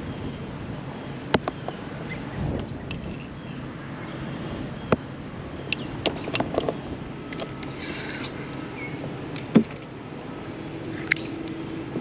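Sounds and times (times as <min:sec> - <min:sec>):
wind: 0:00.0 - 0:12.0
water wash from paddling: 0:06.0 - 0:12.0.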